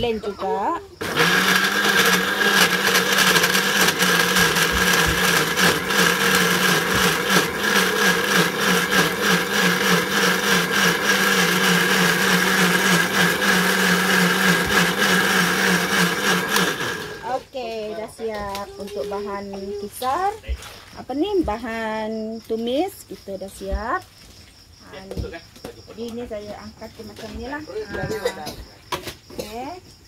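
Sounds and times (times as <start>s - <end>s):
blender motor grinding: 1.0s - 17.4s.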